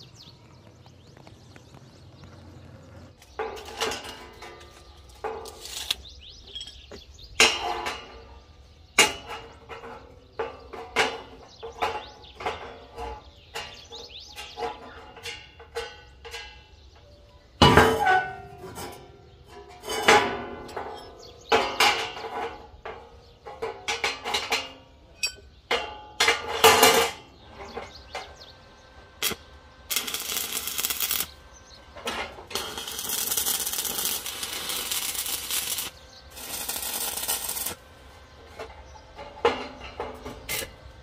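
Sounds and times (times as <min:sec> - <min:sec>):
steady hissing metalwork noise: 0:00.0 - 0:41.0
steel parts clanking: 0:03.3 - 0:08.1, 0:17.6 - 0:28.5, 0:29.2 - 0:37.8, 0:38.4 - 0:41.0.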